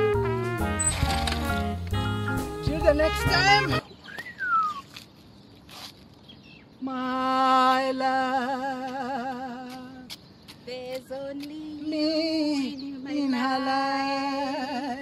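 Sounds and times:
man and woman singing: 6.8 - 15.0.

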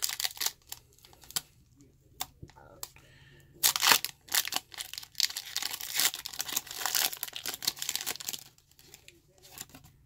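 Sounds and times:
foil wrapper tearing and crinkling: 0.0 - 1.4, 3.6 - 9.8.

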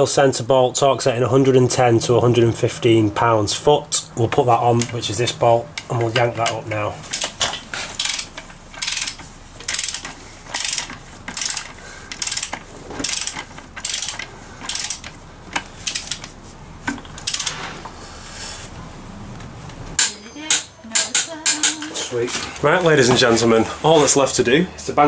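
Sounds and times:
socket ratchet clicking: 5.8 - 16.3, 17.1 - 17.6.

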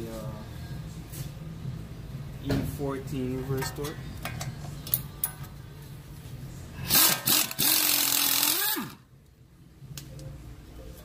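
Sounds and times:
air impact wrench running: 6.8 - 9.0.

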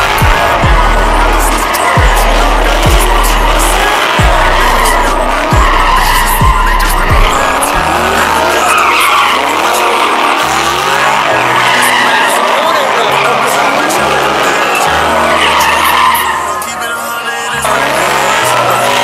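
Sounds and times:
music with booming bass: 0.0 - 8.7
car tyres screeching: 0.0 - 19.0.

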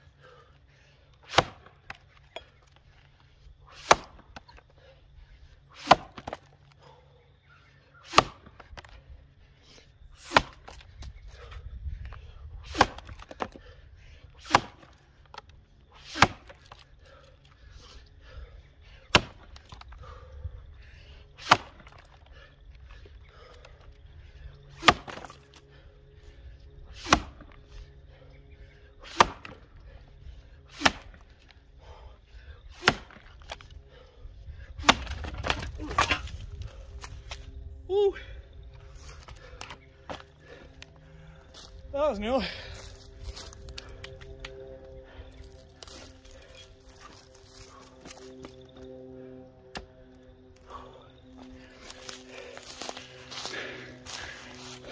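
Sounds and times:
axe chopping log: 1.2 - 2.0, 3.7 - 4.6, 5.8 - 6.5, 8.0 - 8.9, 10.2 - 10.8, 12.7 - 13.6, 14.4 - 14.9, 16.0 - 16.8, 19.1 - 19.8, 21.4 - 22.0, 24.8 - 25.4, 27.0 - 27.5, 29.0 - 29.6, 30.7 - 31.2, 32.7 - 33.6, 34.8 - 36.4.

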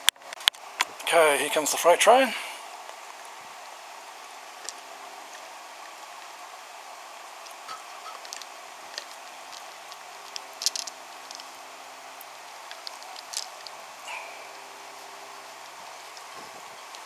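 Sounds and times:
steady hiss: 0.0 - 17.0
toy train wheels clicking on track: 8.0 - 11.5.

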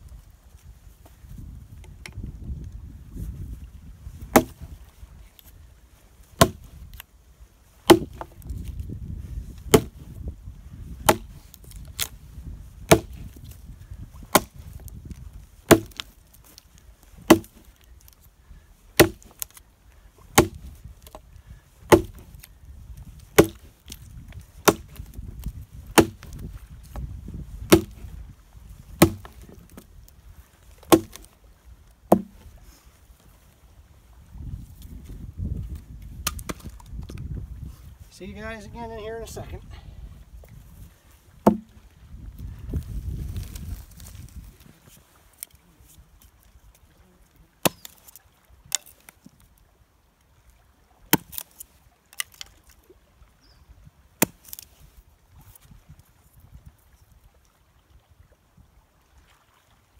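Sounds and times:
axe chopping log: 4.3 - 4.7, 6.4 - 6.7, 7.8 - 8.5, 9.7 - 10.1, 11.0 - 11.4, 12.8 - 13.4, 14.2 - 14.6, 15.7 - 16.1, 17.2 - 17.7, 19.0 - 19.6, 20.3 - 21.2, 21.8 - 22.5, 23.3 - 24.0, 24.6 - 25.2, 25.9 - 28.2, 28.9 - 29.9, 30.8 - 31.3, 32.1 - 32.4, 36.2 - 36.7, 41.4 - 41.8, 47.6 - 49.1, 51.1 - 52.5, 54.2 - 54.7.

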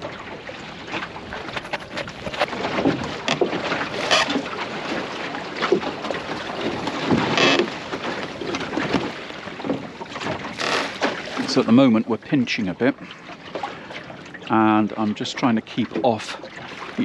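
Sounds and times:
water slapping against boat hull: 0.0 - 17.0
wind on microphone: 1.2 - 4.4.

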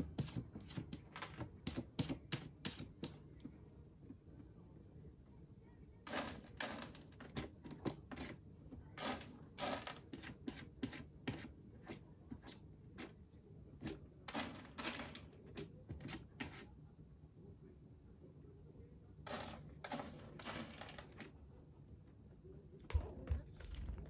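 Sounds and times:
cat scraping in litter pellets: 6.0 - 7.1, 9.0 - 11.0, 14.3 - 15.3, 19.2 - 21.3.

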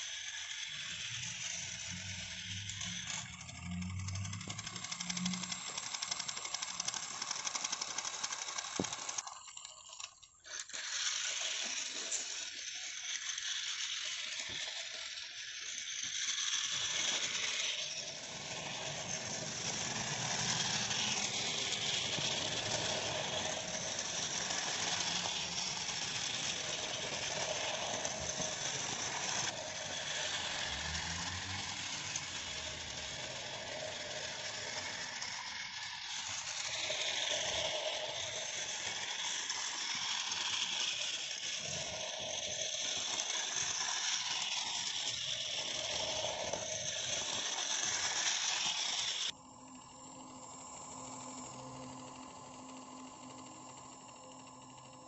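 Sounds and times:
toy train motor whirring: 0.0 - 55.0
wheels clattering over track joints: 1.7 - 14.8, 16.7 - 49.3.

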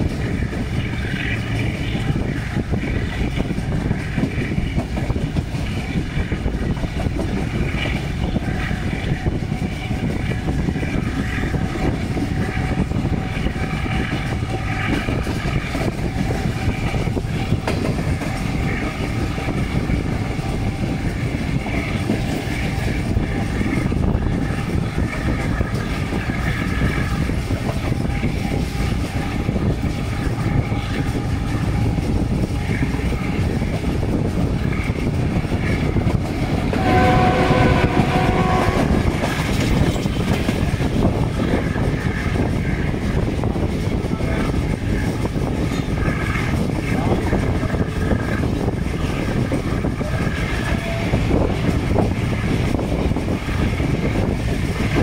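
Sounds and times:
train wheels clattering on rails: 0.0 - 55.0
wind: 0.0 - 55.0
multi-tone train air horn: 36.6 - 39.6, 50.0 - 51.4.

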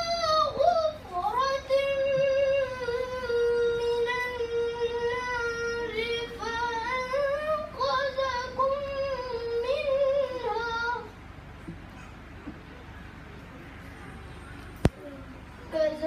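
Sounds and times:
boy chanting melodically: 0.0 - 11.2.

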